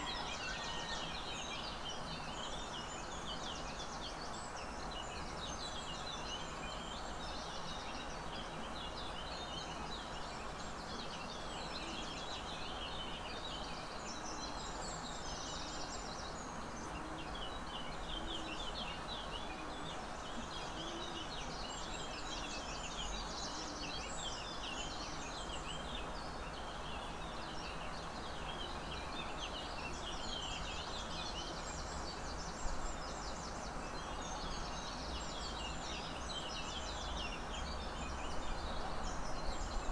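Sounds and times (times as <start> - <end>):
background hiss: 0.0 - 39.9
small birds chirping: 0.0 - 39.9.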